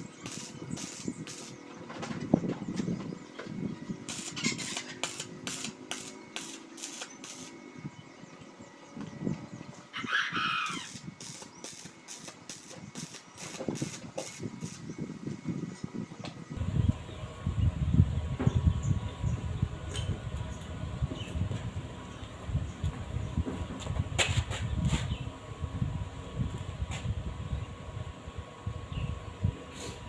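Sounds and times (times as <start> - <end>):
arc welder crackling: 0.0 - 1.8, 3.9 - 7.6, 10.5 - 15.0
chicken call: 9.9 - 11.0.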